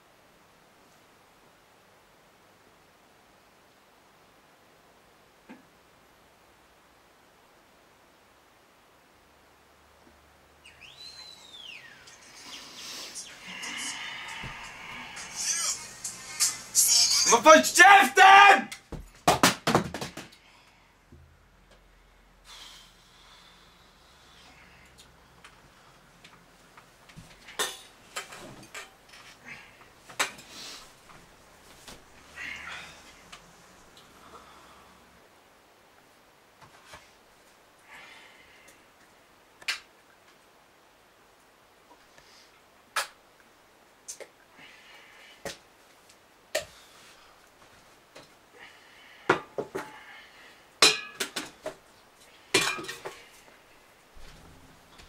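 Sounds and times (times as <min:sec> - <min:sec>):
bedding rustling: 0:52.5 - 0:55.0.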